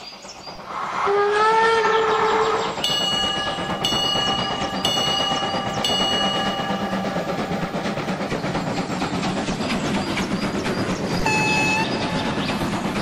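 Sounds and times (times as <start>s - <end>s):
train rumbling and rail clatter: 0.0s - 13.0s
train horn blast: 1.1s - 2.5s, 11.2s - 12.0s.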